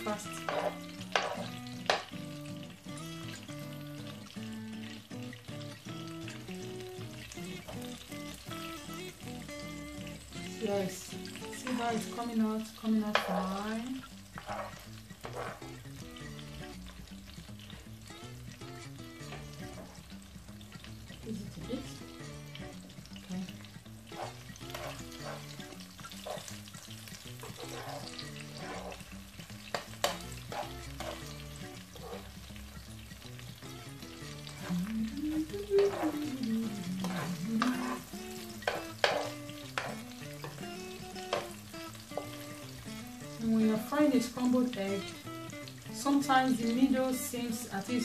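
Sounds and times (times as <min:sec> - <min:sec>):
metal spoon scraping a pan: 0:00.0 - 0:02.2, 0:12.9 - 0:16.4, 0:19.0 - 0:20.1, 0:23.6 - 0:32.6, 0:33.8 - 0:43.4
eggs sizzling in a frying pan: 0:00.0 - 0:48.0.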